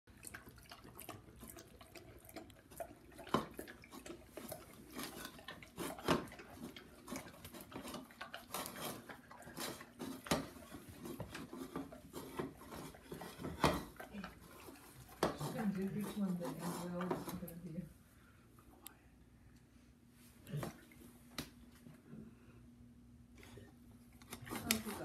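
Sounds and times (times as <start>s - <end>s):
dog lapping water: 0.1s - 17.4s.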